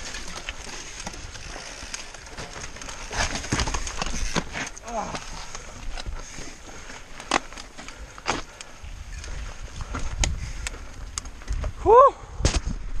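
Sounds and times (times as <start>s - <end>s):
wind rumbling on microphone: 8.7s - 13.0s.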